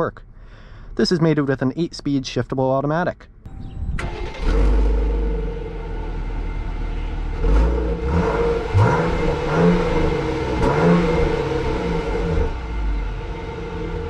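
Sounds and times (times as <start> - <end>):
car exhaust idling and revving: 3.4 - 14.0.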